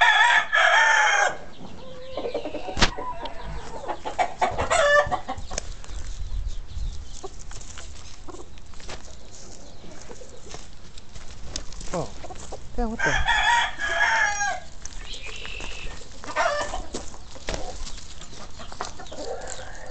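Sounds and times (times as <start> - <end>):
rooster crowing: 0.0 - 1.5, 13.0 - 14.7, 16.3 - 16.8
chickens clucking: 0.9 - 19.9.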